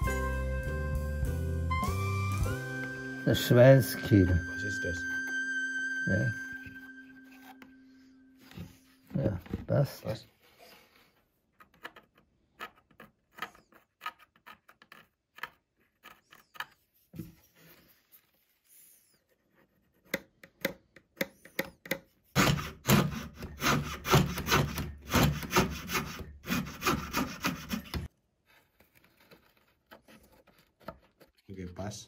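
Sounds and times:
rasping strokes on wood: 0:22.4 - 0:28.1.

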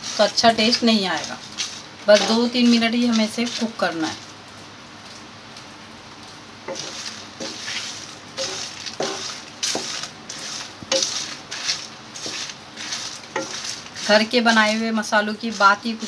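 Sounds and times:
spices scraping and rattling in pan: 0:00.0 - 0:04.4, 0:06.6 - 0:16.0.

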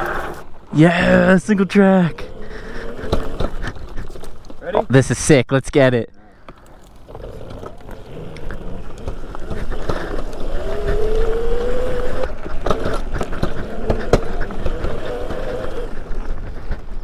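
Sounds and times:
low wind rumble: 0:00.0 - 0:04.7, 0:06.3 - 0:17.0
bike rattling on rough trail: 0:00.0 - 0:05.0, 0:06.4 - 0:17.0
electric motor whining: 0:07.0 - 0:16.1.

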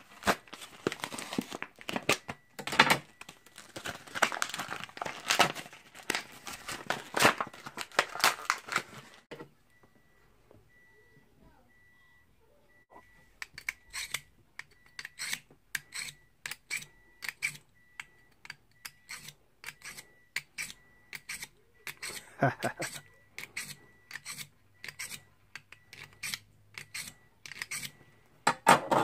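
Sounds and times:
knife scraping through sharpener: 0:13.6 - 0:14.3, 0:15.0 - 0:17.6, 0:18.8 - 0:25.2, 0:26.0 - 0:28.0.

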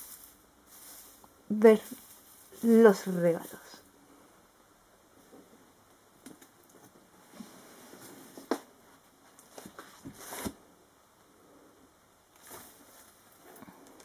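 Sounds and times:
faint rustles and light knocks: 0:06.2 - 0:10.6, 0:12.4 - 0:14.0.

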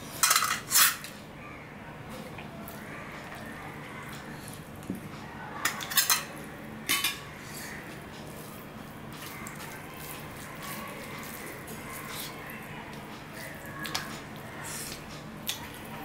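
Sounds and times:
steel tableware clinking: 0:00.2 - 0:01.1, 0:05.6 - 0:07.2
fingers mixing rice on steel plate: 0:02.7 - 0:16.0.

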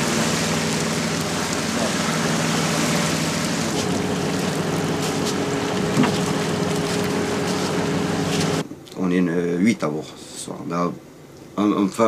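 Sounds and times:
boat engine running: 0:00.0 - 0:08.6
higher hum: 0:00.0 - 0:08.6.

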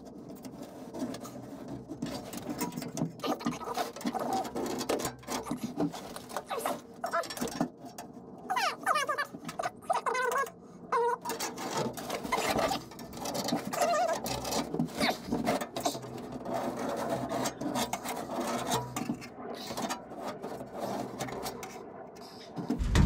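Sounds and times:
short squeaks: 0:08.5 - 0:16.0.

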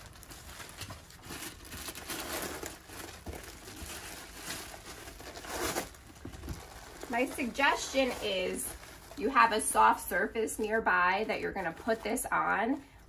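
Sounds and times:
paper and plastic wrapping crinkling: 0:00.0 - 0:13.0.

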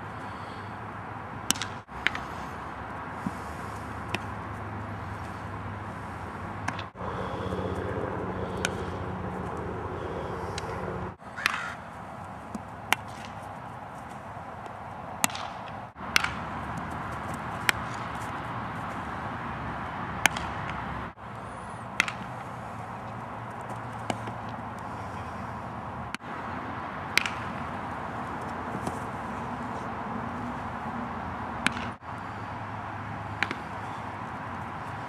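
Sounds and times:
bat cracking ground balls: 0:01.3 - 0:02.5, 0:03.2 - 0:19.0, 0:19.6 - 0:20.9, 0:21.8 - 0:25.2, 0:26.1 - 0:26.4, 0:27.0 - 0:30.5, 0:31.6 - 0:32.0, 0:33.2 - 0:35.0.

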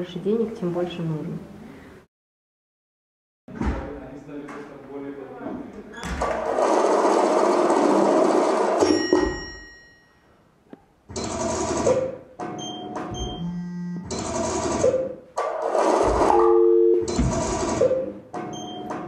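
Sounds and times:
ringing tones: 0:08.8 - 0:10.4
electronic beeps and held tones: 0:12.6 - 0:14.1.

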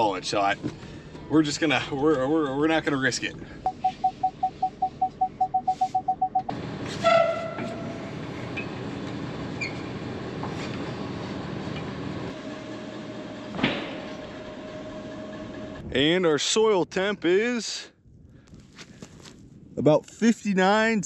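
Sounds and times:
parking sensor beeping fast: 0:03.6 - 0:06.5.

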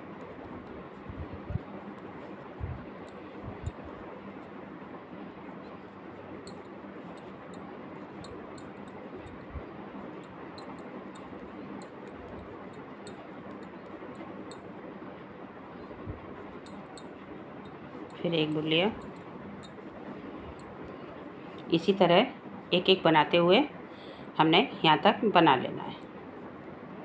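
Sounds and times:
knitting needles clicking: 0:06.5 - 0:07.6, 0:10.2 - 0:14.3.

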